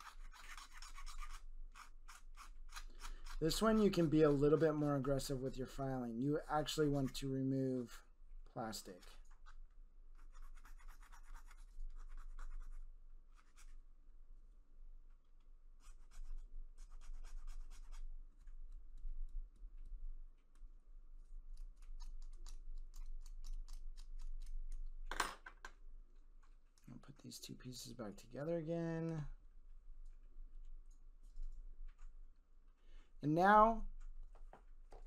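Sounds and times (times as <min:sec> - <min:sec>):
hand file rasping on plastic: 0:00.0 - 0:04.0.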